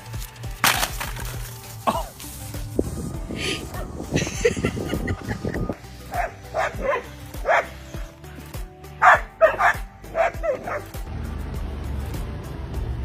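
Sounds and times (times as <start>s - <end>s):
background music: 0.0s - 13.0s
dog barking: 6.1s - 7.8s, 9.0s - 10.9s.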